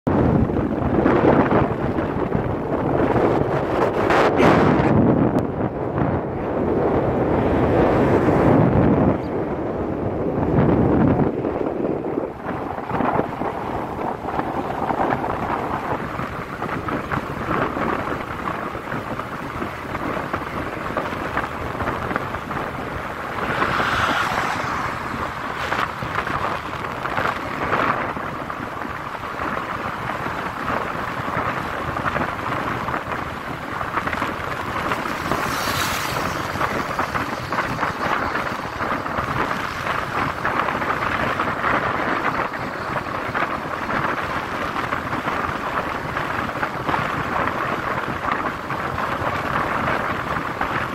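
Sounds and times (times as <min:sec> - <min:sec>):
wind buffeting microphone: 0:00.1 - 0:50.9
motorcycle engine: 0:18.8 - 0:46.2.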